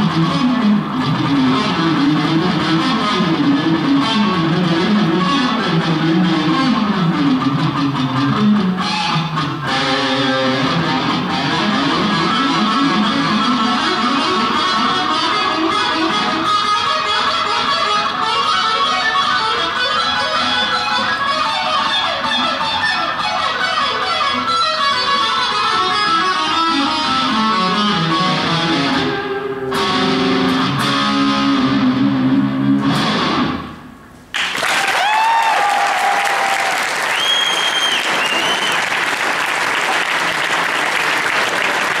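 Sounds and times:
electric guitar solo: 0.0 - 34.0
audience applause and cheers: 34.3 - 42.0
audience whistling: 34.6 - 42.0.

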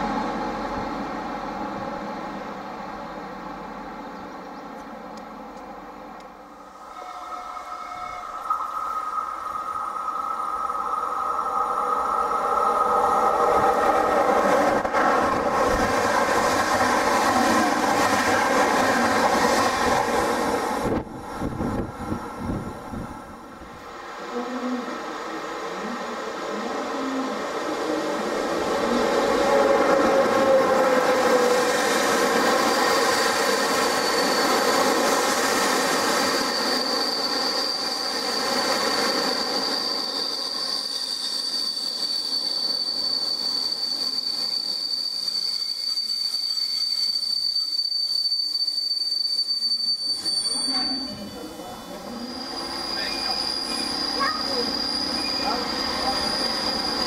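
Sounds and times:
high brake squeal: 6.9 - 11.1, 31.5 - 57.0
train wheels rumbling on rails: 7.8 - 47.7.

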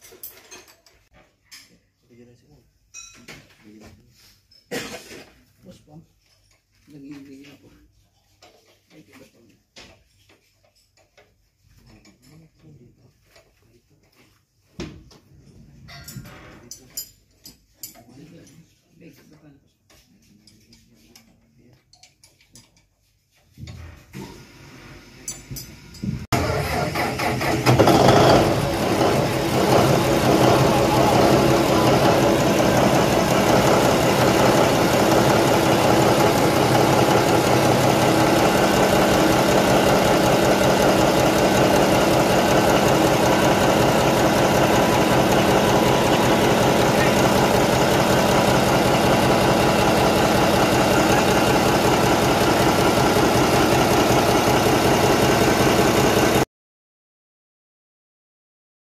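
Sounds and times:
marine diesel engine running: 26.4 - 56.4.

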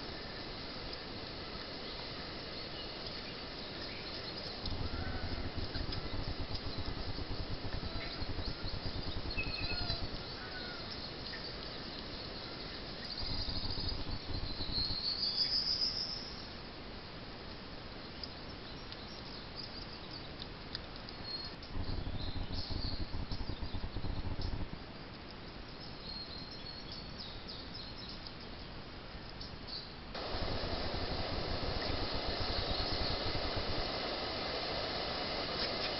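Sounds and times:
bird chirps and calls: 3.9 - 11.5
insect buzz: 3.9 - 11.5, 12.4 - 16.4, 21.8 - 24.8, 30.2 - 35.9
low rumble: 4.6 - 10.5, 13.1 - 15.2, 21.7 - 24.8, 30.2 - 35.5.

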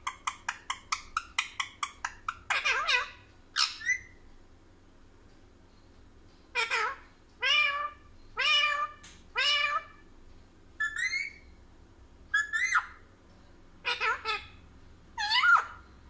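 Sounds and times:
parakeet harsh calls: 0.0 - 4.2, 6.5 - 10.0, 10.8 - 11.5, 12.3 - 13.0, 13.8 - 15.9.

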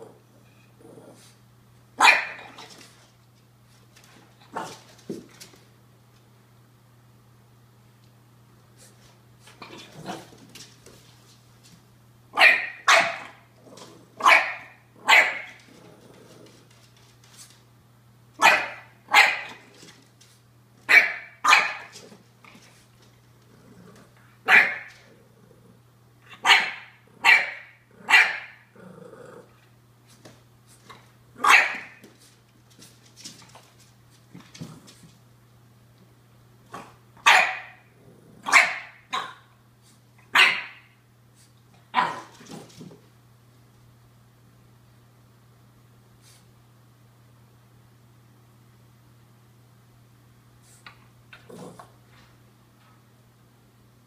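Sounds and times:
puppy growling: 0.0 - 1.4, 15.6 - 16.7, 23.4 - 24.4, 25.0 - 25.9, 27.9 - 29.7, 37.9 - 38.5, 51.3 - 52.0
puppy barking: 2.0 - 2.6, 12.4 - 13.5, 14.2 - 15.6, 18.4 - 19.7, 20.9 - 21.9, 24.4 - 25.0, 26.3 - 28.6, 31.4 - 32.0, 37.2 - 39.5, 40.3 - 40.9, 41.9 - 42.3.

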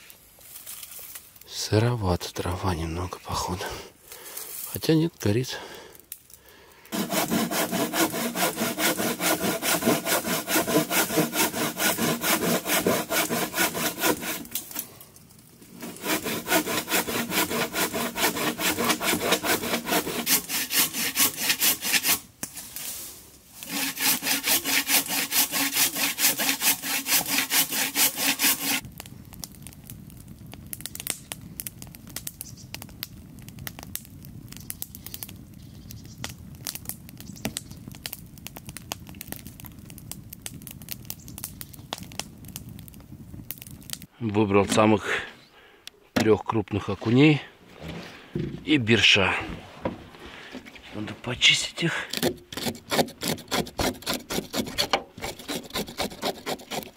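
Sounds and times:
faint scattered crackles: 0.0 - 1.8, 2.9 - 7.0, 14.5 - 15.8, 28.8 - 52.1
hand saw cutting wood: 6.9 - 14.8, 15.7 - 22.2, 23.6 - 28.8, 52.0 - 56.9.

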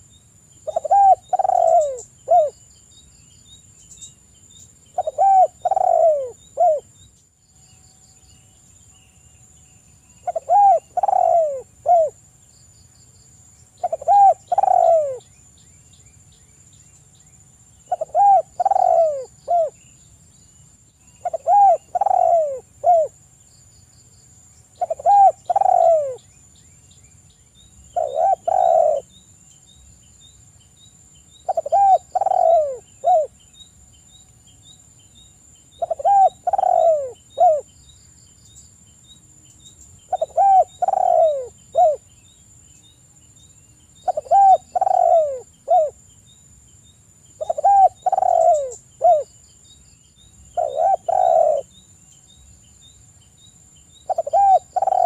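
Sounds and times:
dove cooing: 0.6 - 2.6, 5.0 - 6.9, 10.2 - 12.2, 13.8 - 15.2, 17.9 - 19.8, 21.2 - 23.2, 24.8 - 26.2, 28.0 - 29.1, 31.5 - 33.3, 35.8 - 37.7, 40.1 - 42.0, 44.0 - 46.0, 47.4 - 49.3, 50.6 - 51.7, 54.1 - 55.0.

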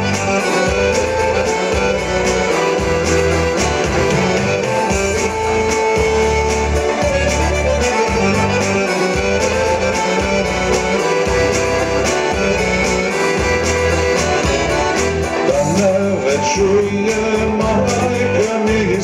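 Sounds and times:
instrumental folk backing track: 0.0 - 19.0.

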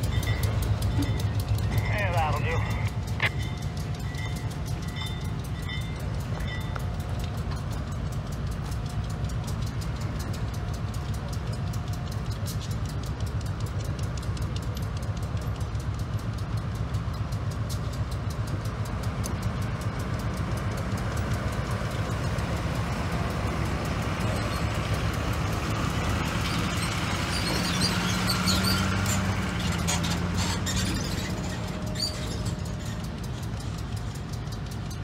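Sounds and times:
diesel locomotive idling: 0.0 - 35.0
road vehicle driving past: 18.1 - 35.0.

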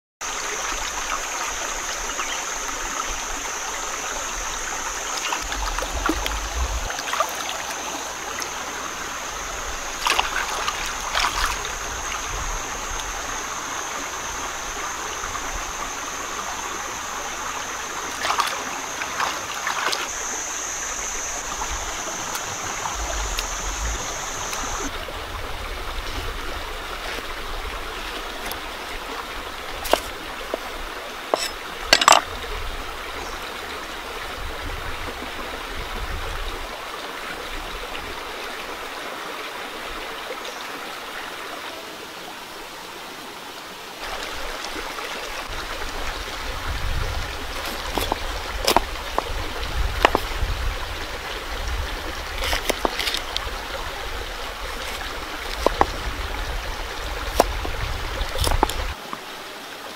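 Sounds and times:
rocky stream flowing: 0.2 - 59.9
high-pitched whine: 0.3 - 28.6.

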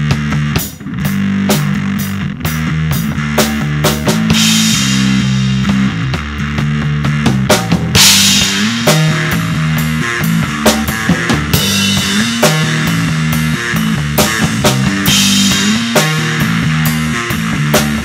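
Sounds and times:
drum beat: 0.0 - 18.0
electric bass line: 0.0 - 18.0
cymbal crashes: 8.0 - 10.1.

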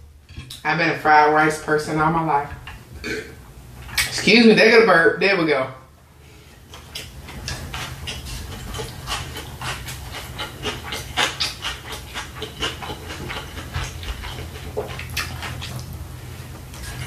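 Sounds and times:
steady low hum: 0.0 - 17.0
wet chewing mouth sounds: 6.6 - 17.0.

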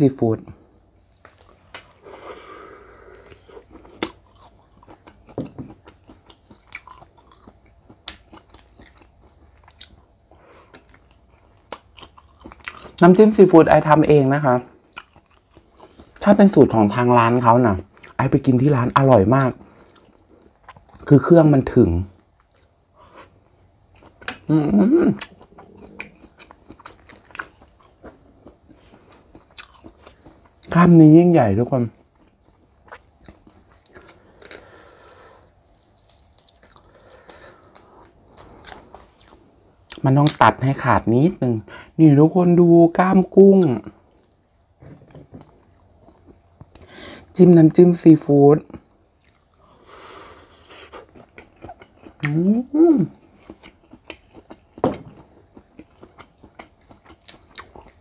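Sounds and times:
mouth sounds of eating: 1.4 - 54.8
wet chewing mouth noises: 22.4 - 30.7, 50.4 - 54.8
short vocal sound: 52.3 - 53.2.

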